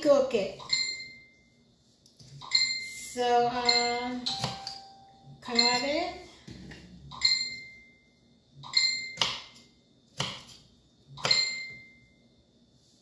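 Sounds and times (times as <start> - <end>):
knife chopping on wooden board: 10.2 - 10.6.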